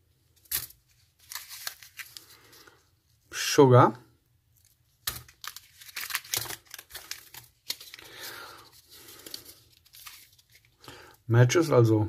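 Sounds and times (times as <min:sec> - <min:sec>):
paper and plastic packets crinkling: 0:00.3 - 0:02.8, 0:04.6 - 0:11.2.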